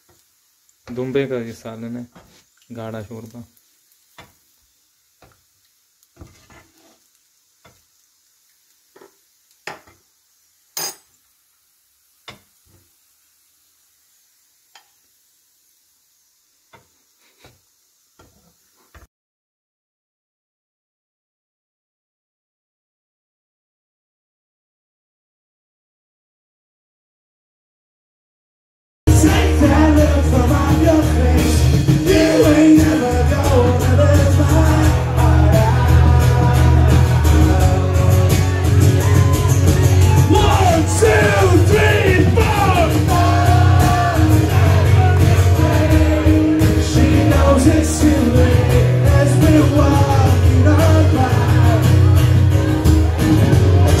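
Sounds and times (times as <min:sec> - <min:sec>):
ladle clinking on pot: 0:10.8 - 0:11.1
man singing into a microphone: 0:29.1 - 0:39.2, 0:40.2 - 0:52.2
amplified rock band music: 0:29.1 - 0:54.0.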